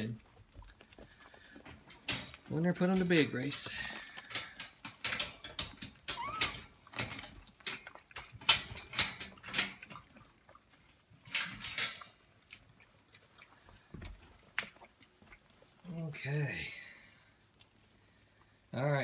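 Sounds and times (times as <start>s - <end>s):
puppy whimper: 6.1s - 6.7s.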